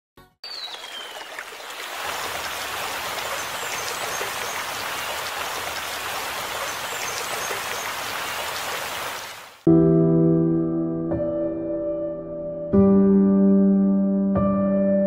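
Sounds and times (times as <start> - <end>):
rushing splashing water: 0.4 - 9.6.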